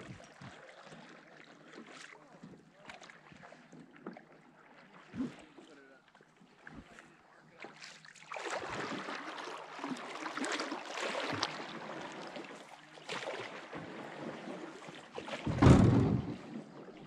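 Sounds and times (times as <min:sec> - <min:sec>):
water sloshing and splashing: 0:00.0 - 0:17.0
deep water rush: 0:07.7 - 0:17.0
canoe knocks: 0:13.6 - 0:14.5, 0:15.3 - 0:16.7.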